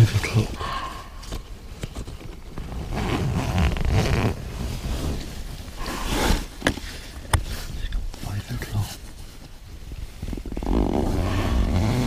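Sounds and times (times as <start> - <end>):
fabric rustling: 1.4 - 11.8
zipper-like rasp: 2.8 - 5.2, 5.8 - 6.5, 10.6 - 12.0.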